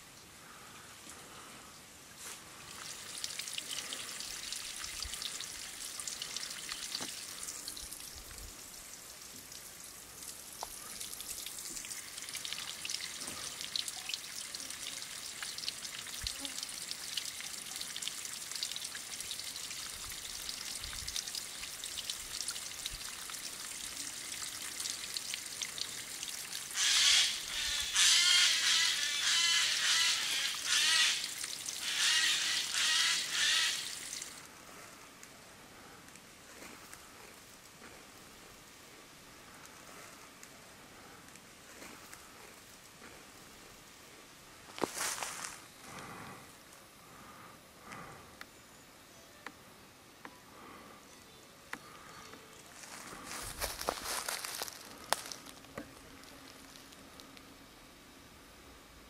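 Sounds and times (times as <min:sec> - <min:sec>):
water trickling down rock: 0:02.5 - 0:27.5, 0:30.1 - 0:34.5
drips splashing into pool: 0:02.6 - 0:34.4.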